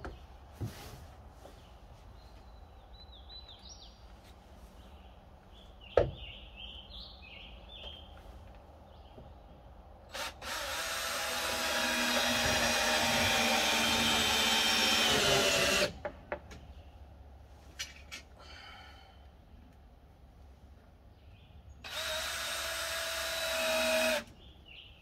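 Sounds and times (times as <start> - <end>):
cordless drill whining: 10.1 - 16.0, 21.9 - 24.3.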